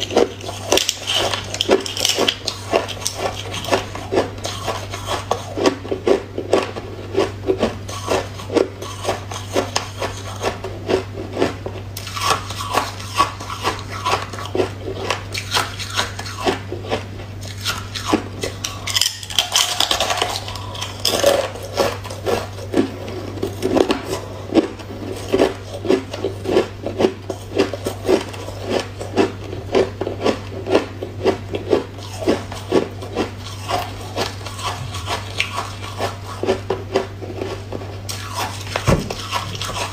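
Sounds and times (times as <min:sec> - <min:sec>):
ice being chewed: 0:00.0 - 0:39.9.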